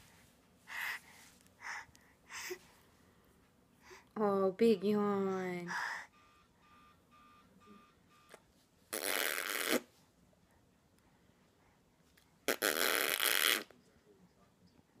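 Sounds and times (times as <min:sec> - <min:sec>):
baby sputtering: 0:08.9 - 0:09.9.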